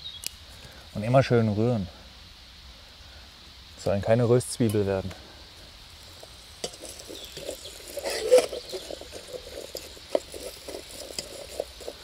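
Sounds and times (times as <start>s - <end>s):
faint sizzle: 0.0s - 12.0s
spoon scraping metal pot: 6.2s - 12.0s.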